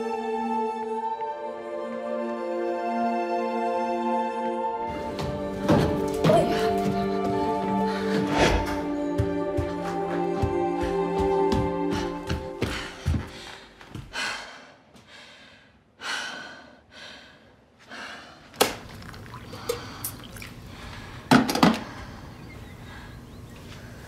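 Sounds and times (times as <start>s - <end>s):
woman breathing hard: 6.4s - 9.0s, 11.8s - 18.6s, 19.5s - 24.0s.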